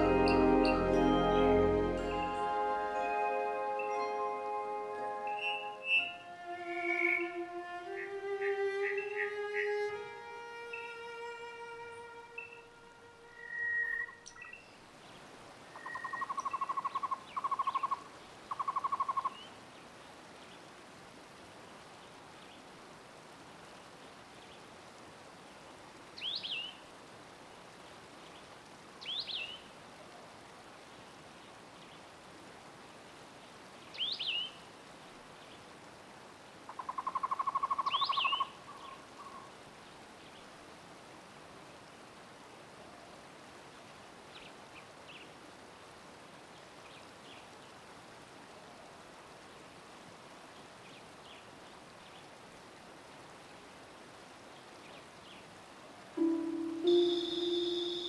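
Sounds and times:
steady background hiss: 0.0s - 58.0s
short high chirps: 56.2s - 58.0s.

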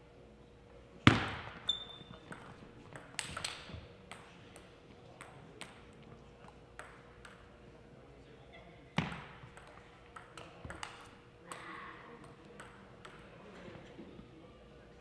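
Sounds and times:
table tennis ball strikes: 1.1s - 5.9s, 6.8s - 7.5s, 9.0s - 13.3s
shoe squeak: 1.6s - 2.3s
ball bouncing ticks: 2.3s - 5.8s, 6.4s - 7.4s, 9.6s - 13.3s.

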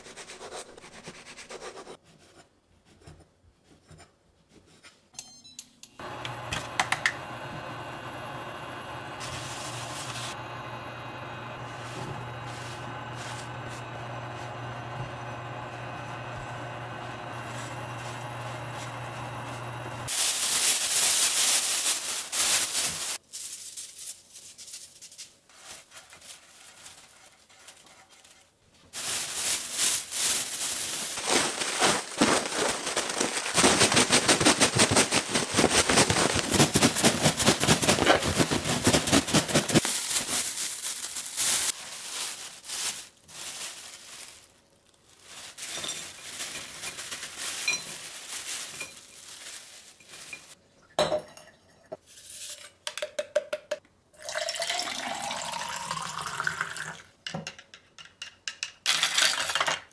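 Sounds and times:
plastic bag crinkling and rattling: 11.5s - 15.6s, 17.2s - 50.6s.

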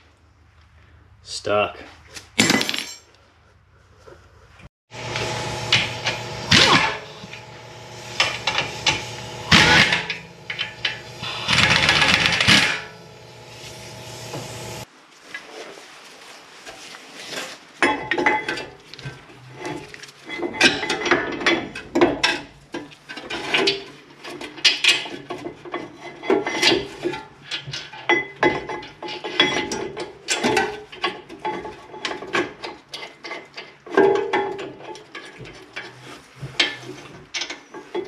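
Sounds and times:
metal clinks and scrapes: 2.5s - 3.2s, 5.7s - 14.8s
loud metal grinding scrapes: 4.9s - 14.9s
motor hum: 4.9s - 14.9s.

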